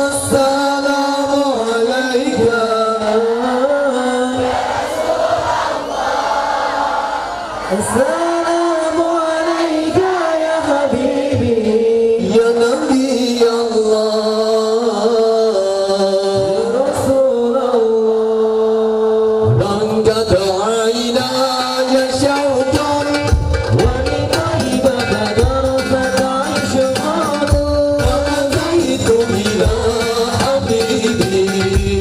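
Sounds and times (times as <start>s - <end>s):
devotional singing: 0.0s - 32.0s
hand-beaten frame drums: 22.2s - 32.0s.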